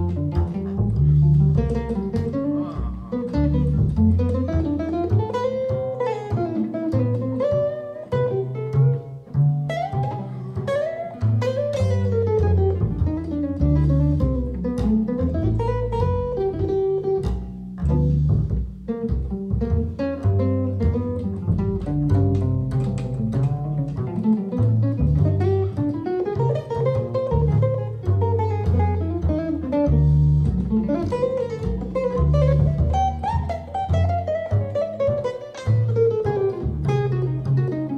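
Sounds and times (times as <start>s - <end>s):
jazz guitar melody: 0.0s - 37.9s
plucked double bass: 0.0s - 37.9s.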